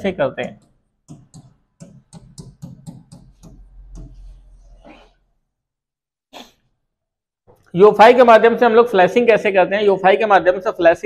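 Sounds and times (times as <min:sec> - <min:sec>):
marker pen writing on a board: 0:00.4 - 0:05.1.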